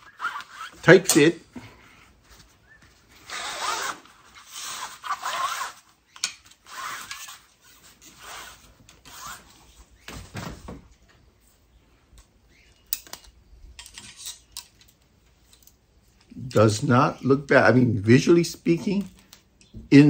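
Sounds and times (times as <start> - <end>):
rod rubbing in fabric bag: 0.0 - 0.8, 3.1 - 5.9, 6.6 - 9.6.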